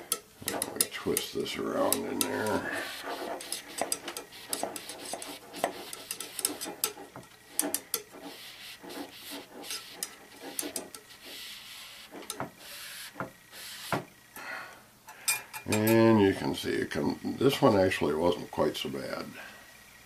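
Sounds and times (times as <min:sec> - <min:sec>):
mop scrubbing inside steel tube: 0:00.0 - 0:13.9.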